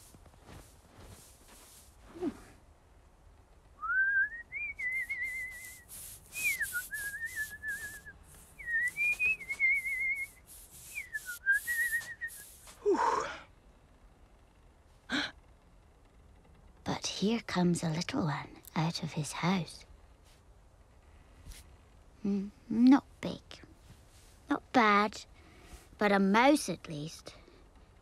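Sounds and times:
crunching steps in snow: 0.0s - 2.5s, 4.8s - 12.8s.

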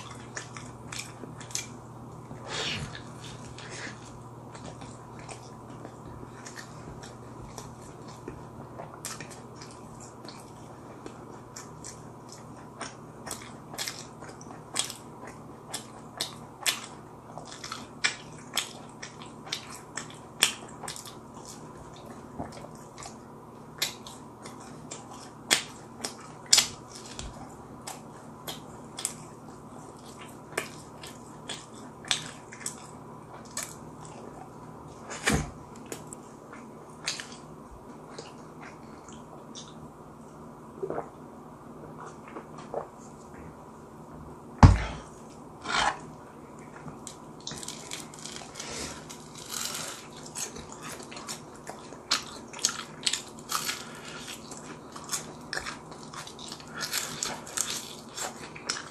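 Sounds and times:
crunching fried chicken: 46.9s - 58.9s.

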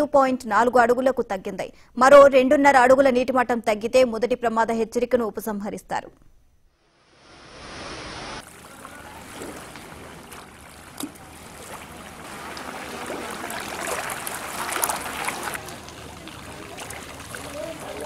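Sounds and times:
floodwater rushing: 7.3s - 18.0s.

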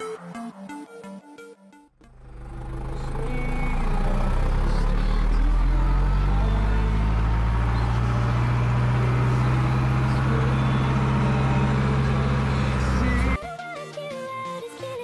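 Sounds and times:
tractor diesel engine running: 2.0s - 13.4s.

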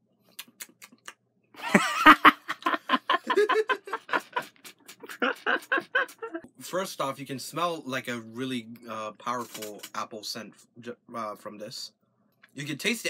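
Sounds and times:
man laughing: 1.6s - 6.4s.

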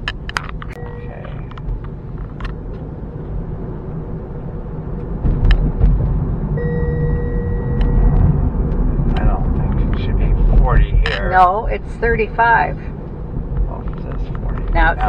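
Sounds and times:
road and tyre rumble: 0.0s - 15.0s
steady high tone: 0.7s - 1.6s, 6.6s - 8.6s.

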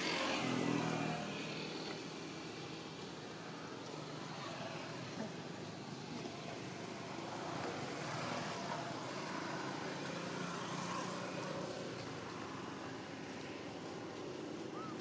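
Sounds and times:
distant engine droning: 0.0s - 15.0s.

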